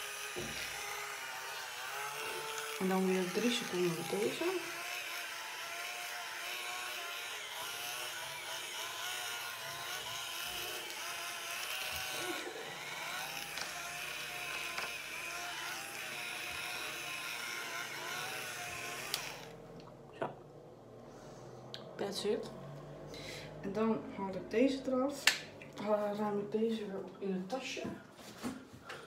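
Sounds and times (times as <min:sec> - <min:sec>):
cleansing brush motor buzzing: 0:00.0 - 0:19.7.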